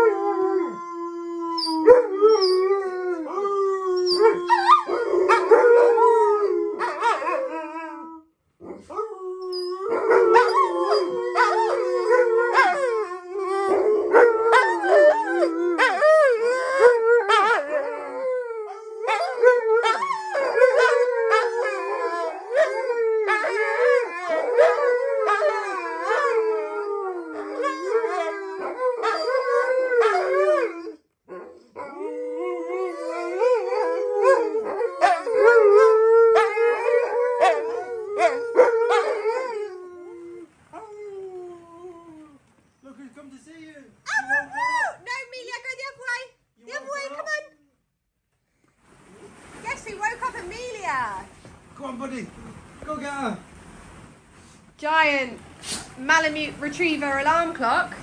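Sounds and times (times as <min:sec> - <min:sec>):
dogs howling together: 0:00.0 - 0:42.4, 0:44.1 - 0:45.0.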